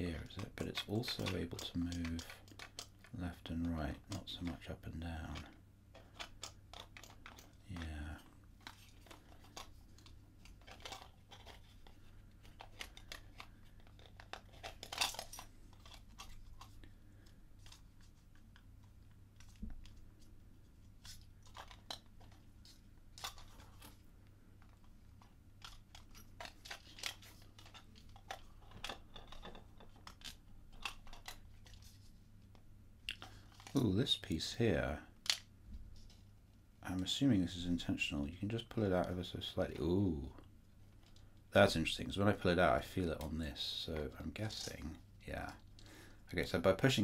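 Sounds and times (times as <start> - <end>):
plastic puzzle box clicking and knocking: 0.3 - 3.1, 3.9 - 16.8, 25.6 - 31.8.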